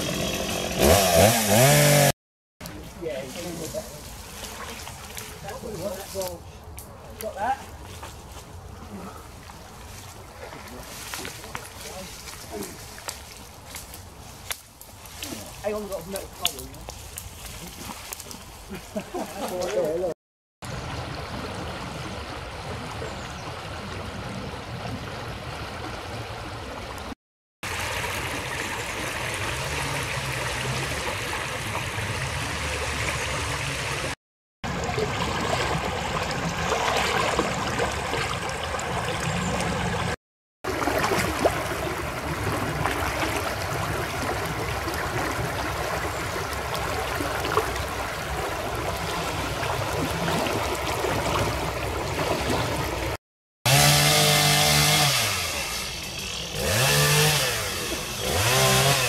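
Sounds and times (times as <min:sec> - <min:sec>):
stream water flowing over rocks: 0:20.7 - 0:53.2.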